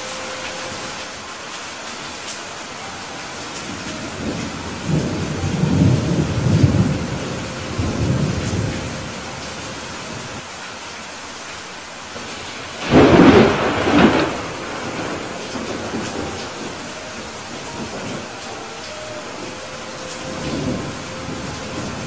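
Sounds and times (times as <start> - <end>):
rain hiss: 0.0 - 22.0
thunder rumbling: 2.8 - 10.4, 12.2 - 22.0.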